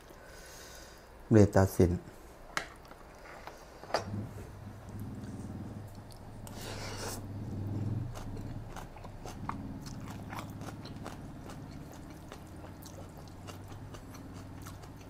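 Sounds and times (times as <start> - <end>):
low steady hum: 0.0 - 15.0
wet chewing: 4.8 - 15.0.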